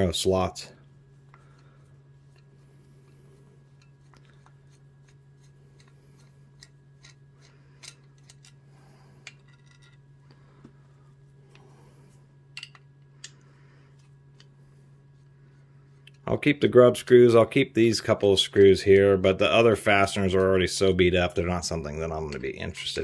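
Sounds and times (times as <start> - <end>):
low hum: 0.0 - 23.0
screwdriver clicking and scraping metal: 3.7 - 8.6.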